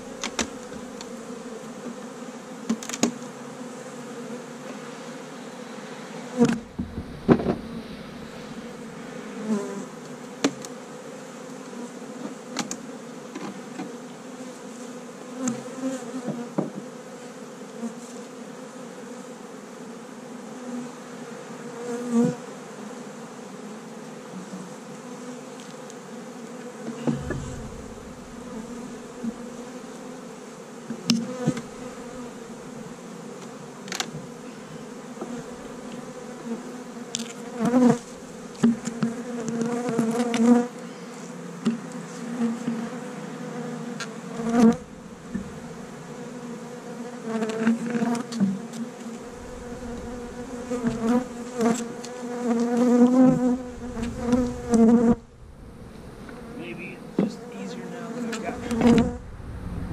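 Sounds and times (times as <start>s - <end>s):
honeybees buzzing: 0.0s - 59.9s
wooden hive boxes knocking: 6.4s - 7.8s, 26.9s - 29.5s, 44.4s - 46.0s, 53.1s - 57.5s, 58.3s - 59.3s.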